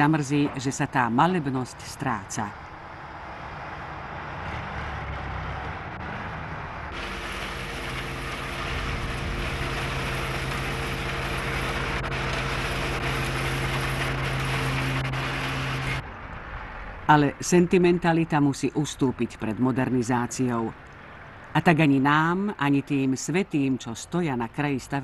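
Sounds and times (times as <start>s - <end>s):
construction machinery engine drone: 2.6s - 17.1s.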